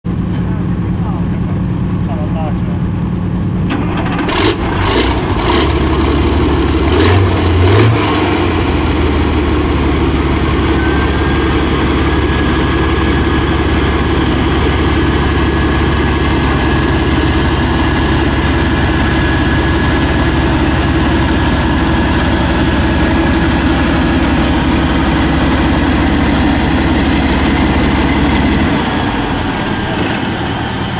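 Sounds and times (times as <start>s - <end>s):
diesel engine starting and idling: 0.1s - 30.9s
thin high whine: 10.4s - 14.2s.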